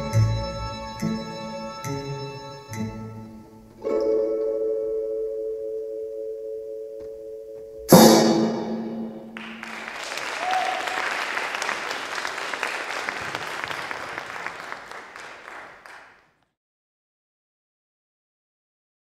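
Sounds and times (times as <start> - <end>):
orchestral music: 0.0 - 4.1
audience applause: 9.4 - 16.3.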